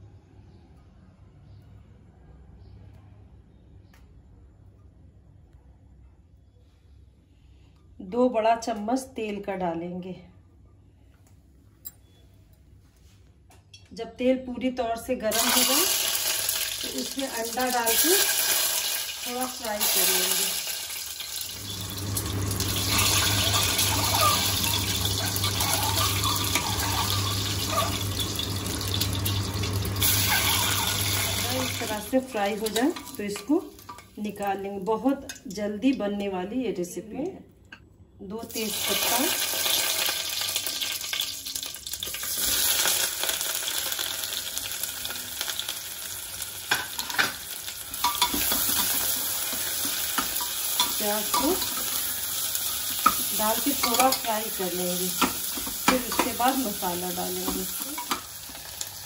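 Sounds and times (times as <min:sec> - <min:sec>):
oil sizzling: 0:15.3 - 0:35.6, 0:38.5 - 0:59.0
spoon knocking against pot: 0:55.2 - 0:56.4.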